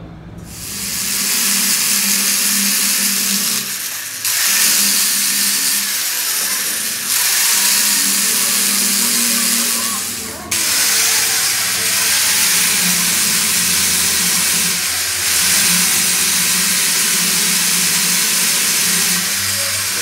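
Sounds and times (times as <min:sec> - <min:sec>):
angle grinder grinding metal: 0:00.5 - 0:20.0.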